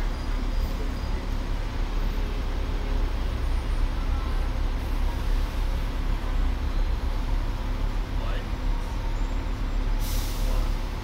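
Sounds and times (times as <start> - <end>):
street traffic: 0.0 - 11.0
tram rumbling: 0.0 - 11.0.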